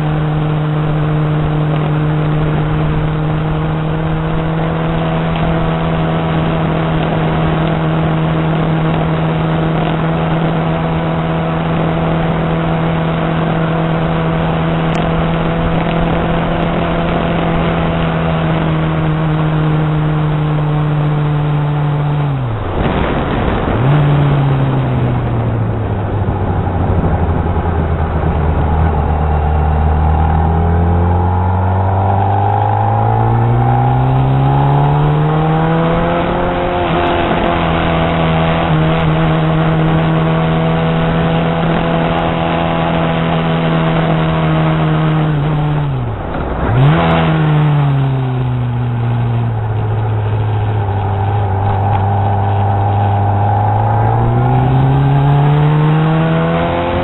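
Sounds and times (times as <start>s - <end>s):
motorcycle engine: 0.0s - 57.0s
wind rushing: 49.5s - 57.0s.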